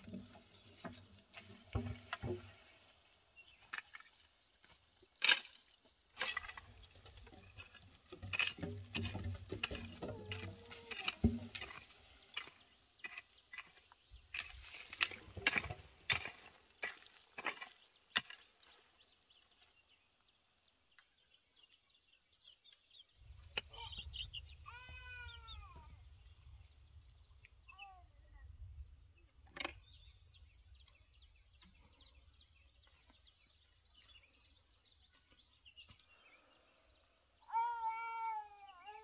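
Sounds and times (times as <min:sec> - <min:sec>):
hoe striking dry soil: 0:00.0 - 0:18.8.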